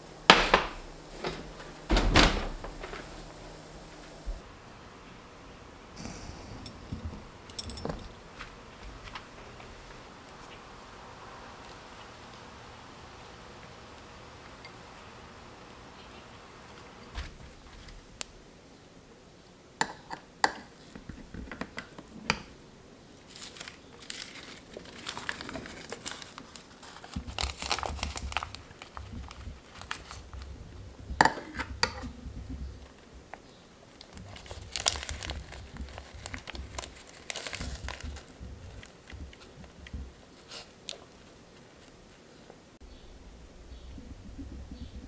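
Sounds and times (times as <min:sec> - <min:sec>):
nori sheets crinkling: 0:23.1 - 0:30.8, 0:32.8 - 0:42.3.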